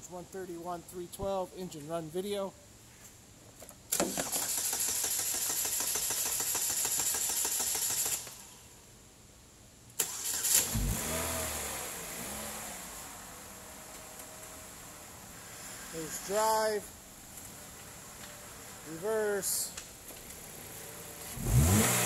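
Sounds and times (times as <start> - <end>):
car engine starter cranking: 4.0 - 6.5, 10.0 - 11.1
car engine revving and idling: 10.5 - 19.0, 20.3 - 22.0.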